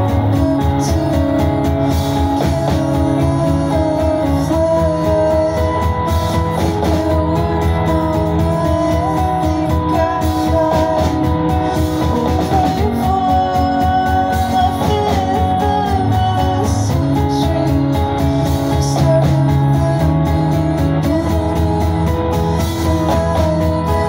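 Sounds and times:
rock band playing live: 0.0 - 24.0
woman singing: 0.0 - 24.0.

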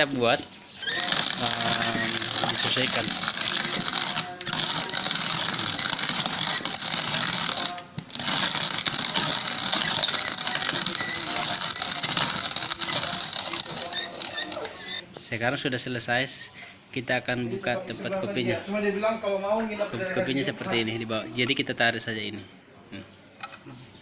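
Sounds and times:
hand-cranked coffee grinder grinding: 0.8 - 15.0.

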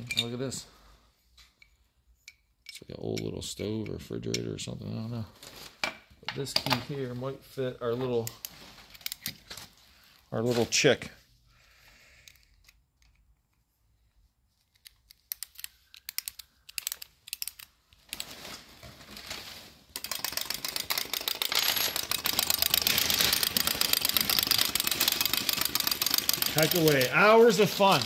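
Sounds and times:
wind-up key clicks: 14.8 - 17.7
clockwork toy ticking clatter: 20.0 - 28.0.

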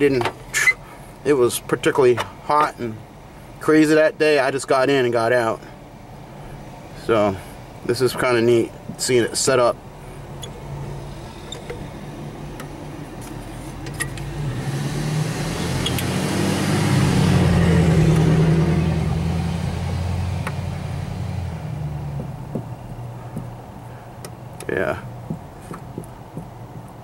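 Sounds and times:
vehicle passing by: 10.6 - 24.0.

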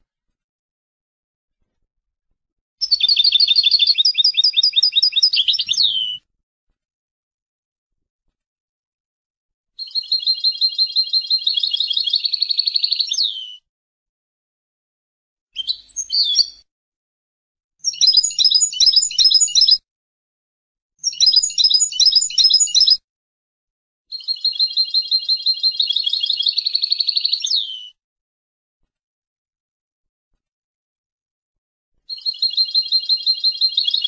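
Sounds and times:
goldfinch singing: 2.8 - 6.2, 9.8 - 13.4, 17.8 - 19.8, 21.0 - 23.0, 24.2 - 27.8, 32.1 - 34.0.

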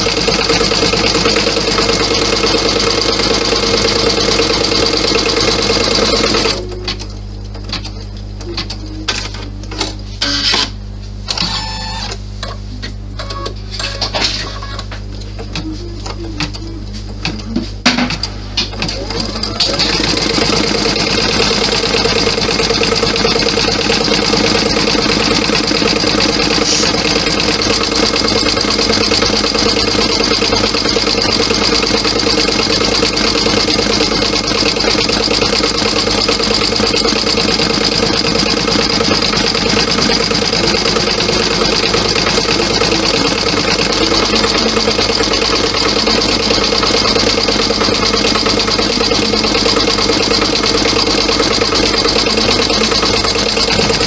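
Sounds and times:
embroidery machine stitching: 0.0 - 7.1, 18.7 - 54.0.

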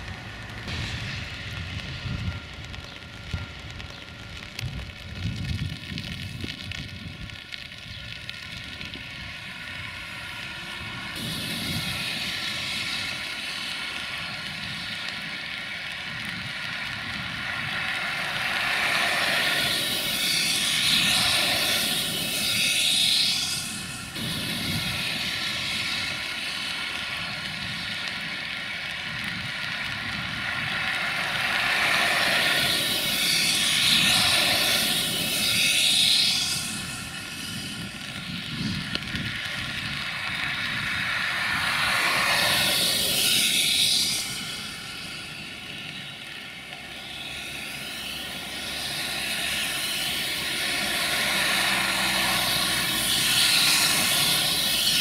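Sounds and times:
rushing air noise: 0.0 - 7.3, 8.5 - 55.0
drone propellers whining: 29.2 - 55.0.

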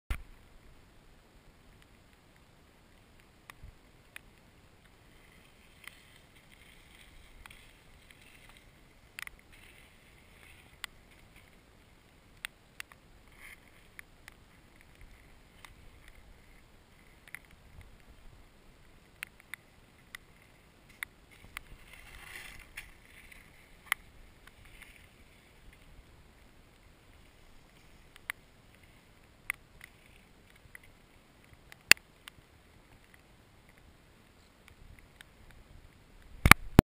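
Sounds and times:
faint background hiss: 0.1 - 36.8
rustling: 1.8 - 35.7
sharp ticks and taps: 29.4 - 33.8.

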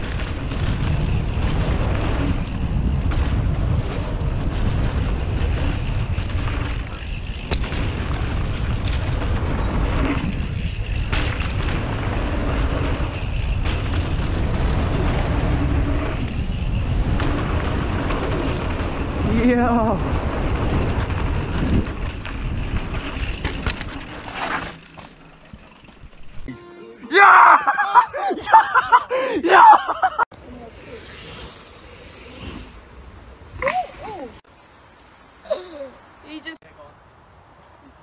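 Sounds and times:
wind buffeting microphone: 0.0 - 24.0
tyres rumbling on dirt: 0.0 - 26.4
bike knocks and rattles: 0.0 - 26.5.

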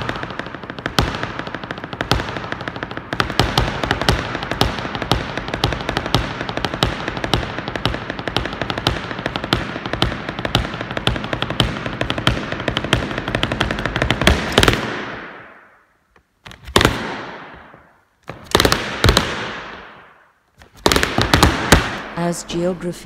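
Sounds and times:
boots stamping on wooden board: 0.0 - 15.2, 20.6 - 22.0.

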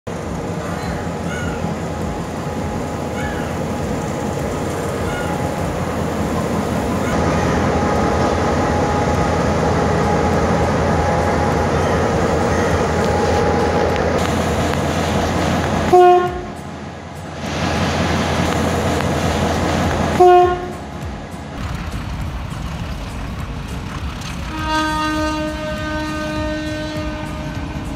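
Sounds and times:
diesel locomotive passing: 0.0 - 27.9
train horn blasts: 15.9 - 16.7, 20.1 - 21.1, 24.5 - 27.9.

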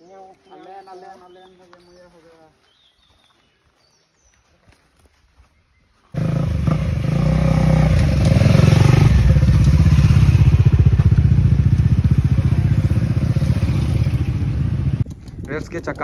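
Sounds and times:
motorcycle engine rumbling: 6.1 - 16.0.

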